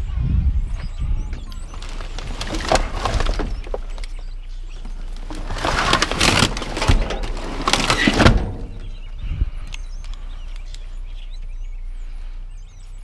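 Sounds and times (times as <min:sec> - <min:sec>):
low steady rumble: 0:00.0 - 0:13.0
plastic trash bags rustling: 0:01.7 - 0:09.0.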